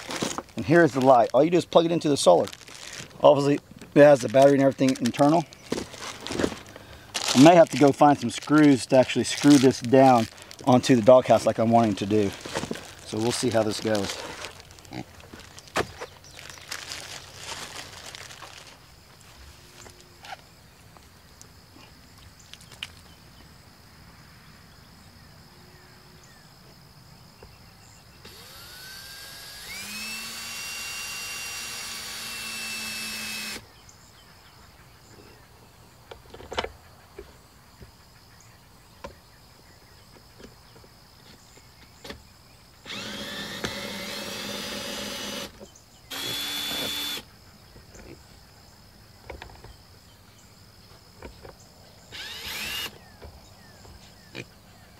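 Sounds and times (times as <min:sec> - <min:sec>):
cordless drill whining: 0:28.2 - 0:33.6, 0:42.8 - 0:47.2, 0:52.1 - 0:53.0.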